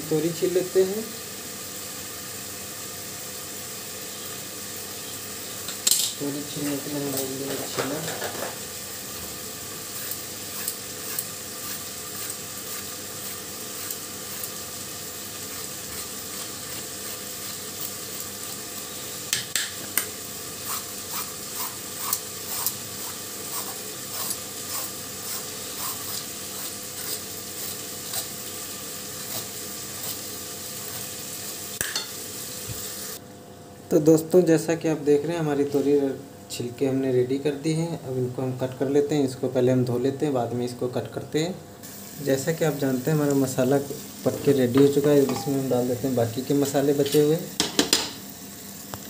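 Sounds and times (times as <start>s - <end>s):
food sizzling in a pan: 0.0s - 33.6s, 41.8s - 49.0s
vegetable peeler scraping: 9.8s - 18.9s, 20.6s - 28.4s, 29.1s - 31.2s.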